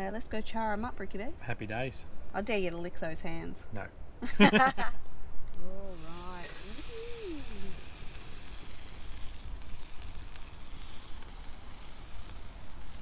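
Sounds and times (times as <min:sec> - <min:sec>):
fire crackling: 0:00.0 - 0:13.0
octopus sizzling on a grill: 0:05.5 - 0:13.0.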